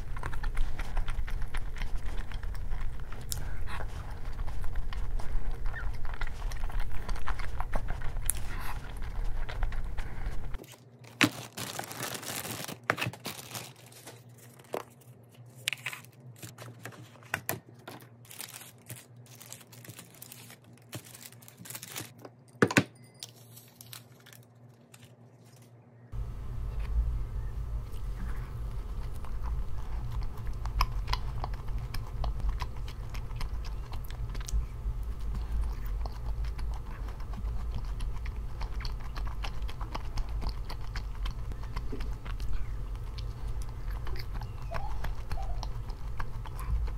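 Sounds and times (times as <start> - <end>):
crinkling and tearing handling noises: 0.0 - 22.4, 23.2 - 25.8
low rumble: 26.2 - 37.0.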